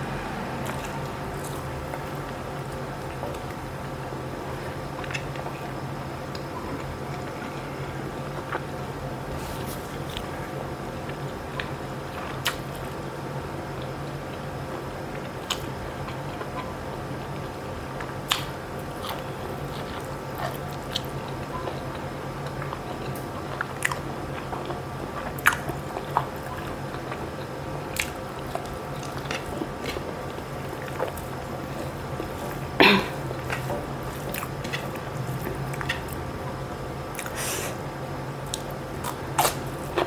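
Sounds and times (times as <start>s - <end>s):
low hum: 0.0s - 11.4s
chewing and mouth sounds: 18.0s - 36.2s, 38.4s - 40.0s.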